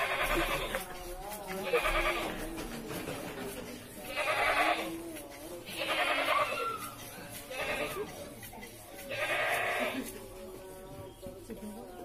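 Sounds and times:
goats bleating: 0:00.0 - 0:02.8, 0:03.8 - 0:10.4
people's voices: 0:00.0 - 0:12.0.

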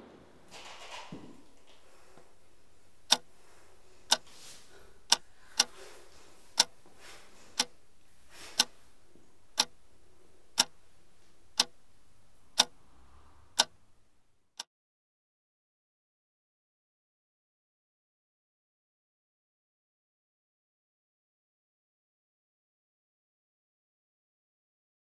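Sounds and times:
low steady hum: 0:01.2 - 0:14.4.

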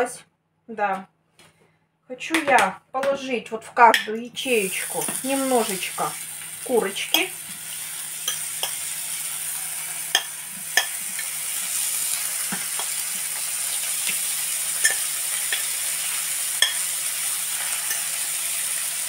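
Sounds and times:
chicken sizzling in hot oil: 0:04.4 - 0:19.0
spoon clicking against pan: 0:08.2 - 0:08.8, 0:10.1 - 0:11.3, 0:14.8 - 0:15.7, 0:16.6 - 0:16.8.

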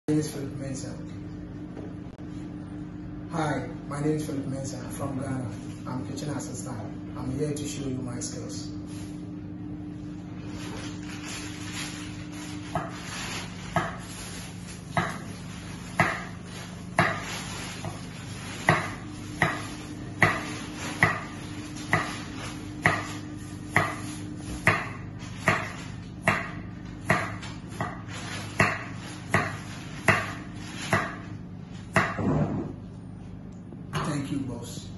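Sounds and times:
knife strikes on wooden board: 0:13.7 - 0:14.0, 0:14.9 - 0:15.3, 0:16.0 - 0:16.4, 0:17.0 - 0:18.0, 0:18.6 - 0:22.2, 0:22.8 - 0:31.3, 0:31.9 - 0:32.6.

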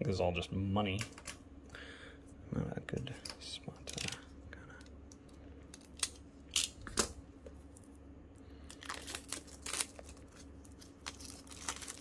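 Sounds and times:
plastic shrink wrap crinkling: 0:08.6 - 0:12.0.

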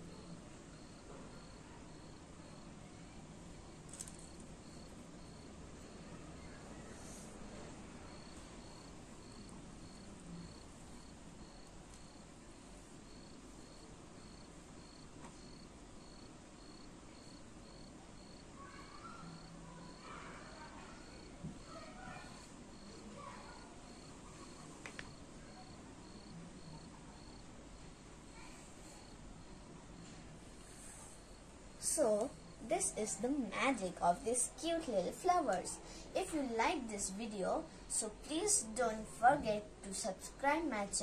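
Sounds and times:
faint insect chirps: 0:00.0 - 0:40.8
low background hiss: 0:00.0 - 0:41.0.

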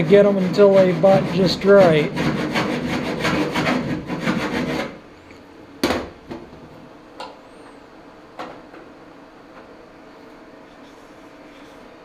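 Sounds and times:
file rasping on sheet metal: 0:00.0 - 0:05.0.

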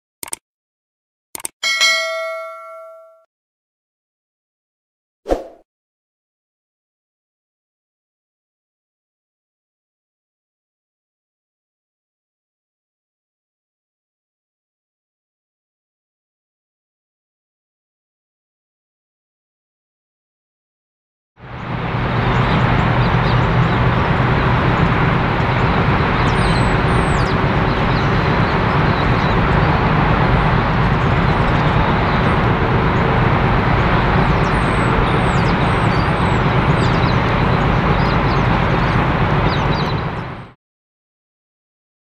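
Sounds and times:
diesel locomotive engine hum: 0:21.4 - 0:40.6.

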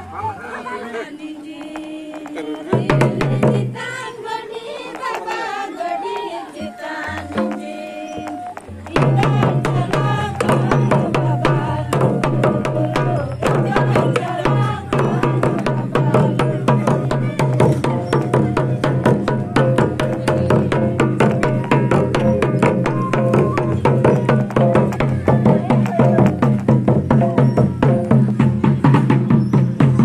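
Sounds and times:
barrel drum beaten with stick: 0:02.7 - 0:03.8, 0:08.7 - 0:30.0
bamboo flute melody: 0:05.4 - 0:30.0.

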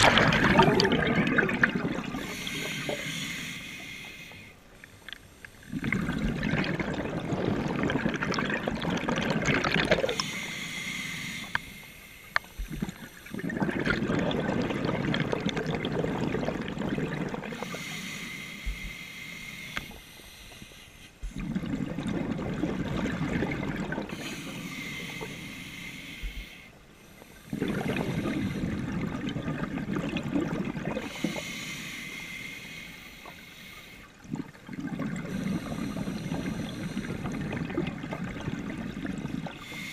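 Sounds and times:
exhaled bubbles gurgling underwater: 0:00.0 - 0:04.5, 0:05.5 - 0:20.0, 0:21.2 - 0:39.9
breathing through a regulator: 0:02.0 - 0:06.2, 0:10.1 - 0:13.6, 0:17.2 - 0:21.8, 0:24.0 - 0:29.0, 0:31.0 - 0:34.2, 0:35.1 - 0:38.1, 0:38.8 - 0:39.9.

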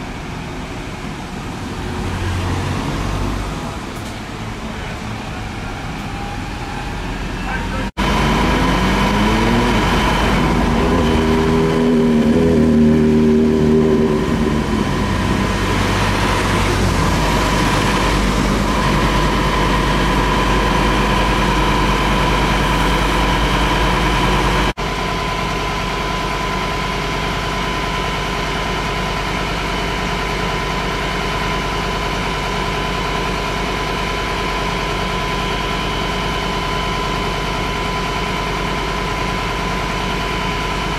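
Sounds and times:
diesel engine running: 0:00.0 - 0:40.9
high whine: 0:06.0 - 0:27.1.

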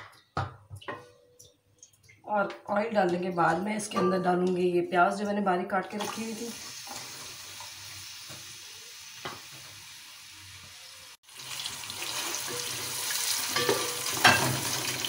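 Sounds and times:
onions sizzling in oil: 0:06.0 - 0:15.0.

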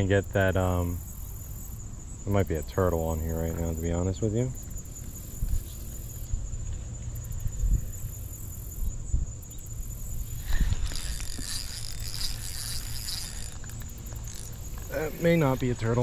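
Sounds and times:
high insect buzz: 0:00.0 - 0:16.0
fishing reel cranking: 0:09.6 - 0:15.9
scratchy rustle: 0:10.4 - 0:15.5.

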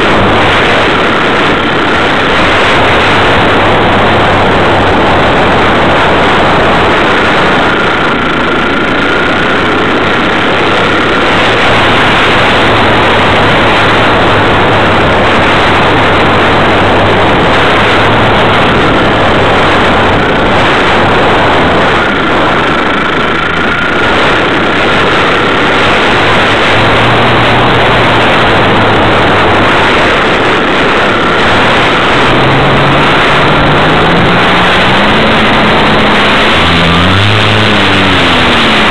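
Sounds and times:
faint wavering whine: 0:00.0 - 0:38.9
model plane motor and propeller: 0:00.0 - 0:38.9
low tone rising in pitch: 0:31.1 - 0:38.9.

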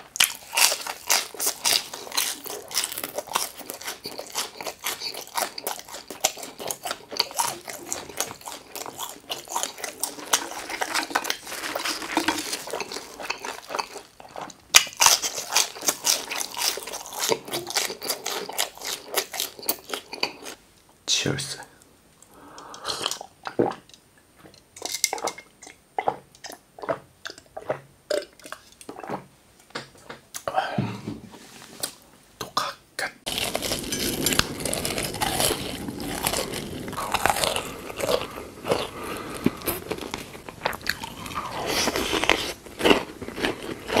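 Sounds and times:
crunchy biting and chewing: 0:00.1 - 0:20.6, 0:33.3 - 0:44.0.

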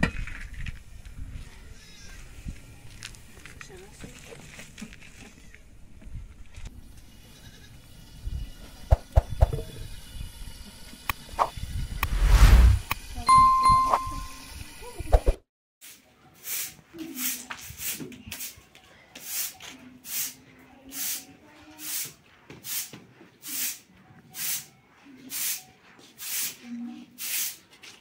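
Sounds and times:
broom sweeping a tiled floor: 0:15.8 - 0:28.0.

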